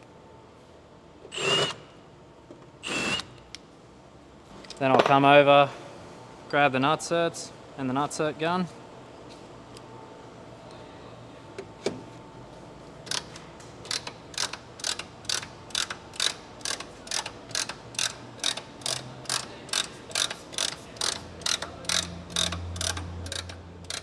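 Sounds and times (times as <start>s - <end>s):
rivet nut tool ratchet clicking: 13.9s - 24.0s.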